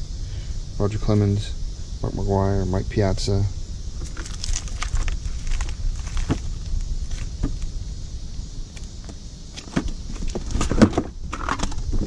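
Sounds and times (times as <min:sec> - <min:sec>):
plastic pages crinkling: 0:04.0 - 0:07.3.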